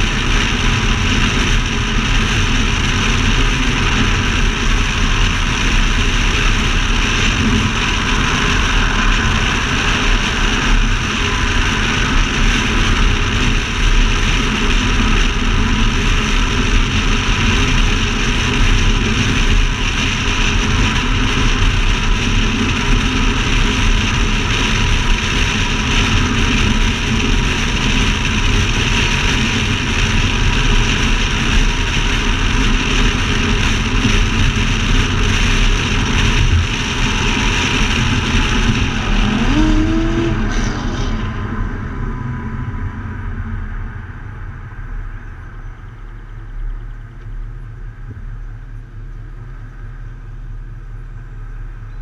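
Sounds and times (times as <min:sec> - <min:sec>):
car engine drone: 0:00.0 - 0:52.0
wind rushing over microphone: 0:00.0 - 0:52.0
tyre roar: 0:37.5 - 0:41.9.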